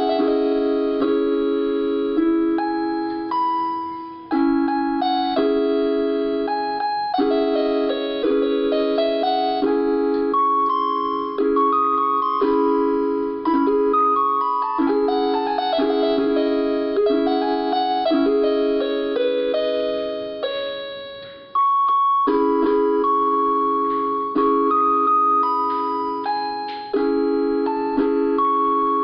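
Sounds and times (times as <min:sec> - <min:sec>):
electronic keyboard chords and melody: 0:00.0 - 0:29.0.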